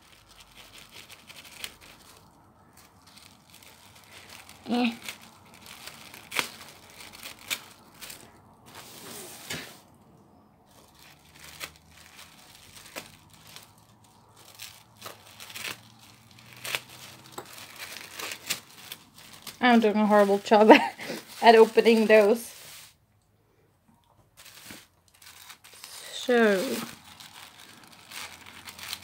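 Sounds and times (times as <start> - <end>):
sticky tape peeling: 0.0 - 8.8, 10.7 - 19.6, 24.4 - 29.0
tissue paper crinkling and tearing: 0.0 - 9.9, 10.7 - 23.0, 24.3 - 29.0.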